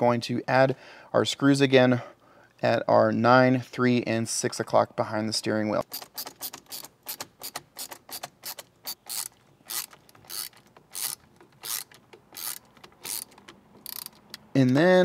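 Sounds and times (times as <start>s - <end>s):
ratcheting screwdriver clicking: 5.8s - 14.8s.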